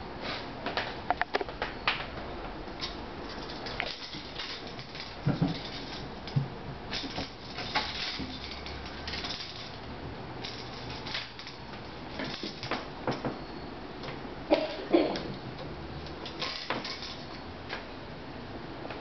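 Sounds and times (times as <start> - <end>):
claws rattling wooden door slats: 2.8 - 9.8, 10.4 - 13.4.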